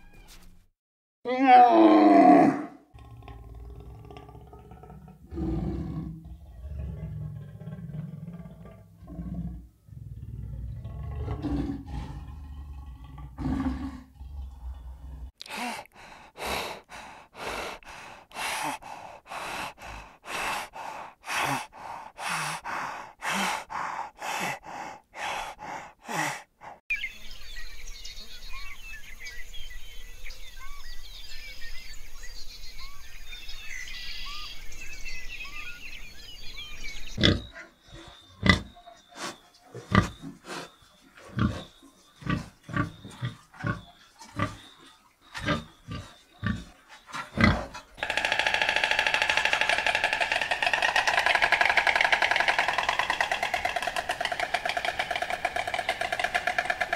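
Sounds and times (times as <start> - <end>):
hyena calling: 1.3 - 2.8, 48.0 - 56.9
pig grunting: 1.4 - 26.8, 37.2 - 44.8, 45.4 - 56.9.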